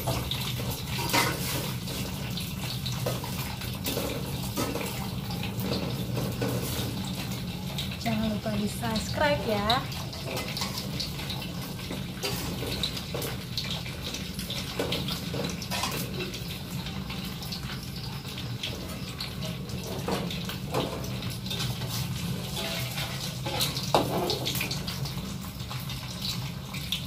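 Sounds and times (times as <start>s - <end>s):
metal spatula stirring in wok: 0.0s - 8.0s, 9.8s - 26.0s
food sizzling in hot oil: 0.0s - 27.0s.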